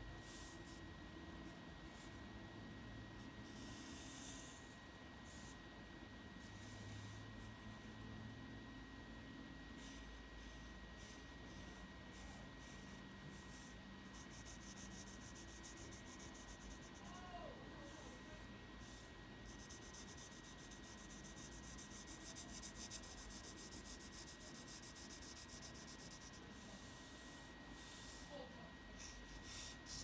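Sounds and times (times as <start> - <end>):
pencil scratching on paper: 0.1 - 2.3, 3.1 - 5.6, 6.4 - 8.0, 9.7 - 17.2, 17.8 - 28.3, 28.9 - 30.0.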